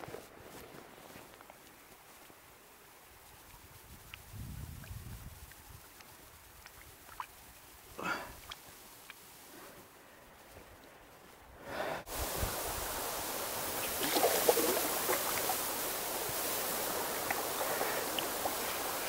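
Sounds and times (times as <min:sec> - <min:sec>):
creek water flowing: 0:01.6 - 0:19.0
splashes of wading: 0:12.1 - 0:19.0.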